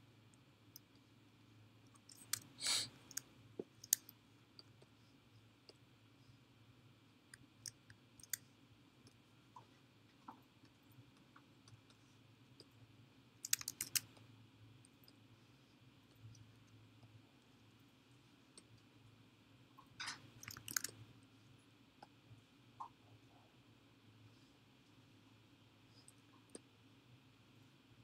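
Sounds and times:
room hum: 0:00.0 - 0:28.0
computer mouse clicks: 0:01.9 - 0:04.2, 0:07.4 - 0:08.4, 0:13.4 - 0:14.2, 0:20.0 - 0:21.0.

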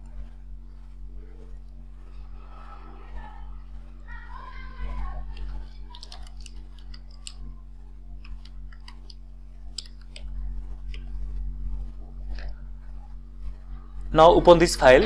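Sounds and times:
low electrical hum: 0:00.0 - 0:15.0
keyboard typing: 0:05.4 - 0:07.4, 0:08.2 - 0:10.3.

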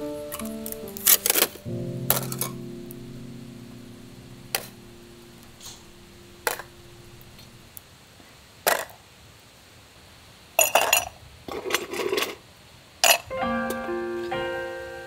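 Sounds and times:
held music chord: 0:00.0 - 0:07.7, 0:13.3 - 0:15.0
small objects clinking and knocking: 0:01.1 - 0:02.6, 0:10.6 - 0:12.4, 0:13.0 - 0:13.3.

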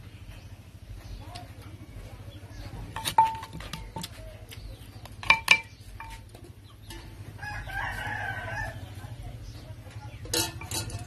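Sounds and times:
pestle clinking in clay mortar: 0:02.9 - 0:04.2, 0:05.0 - 0:07.2, 0:10.2 - 0:11.0.

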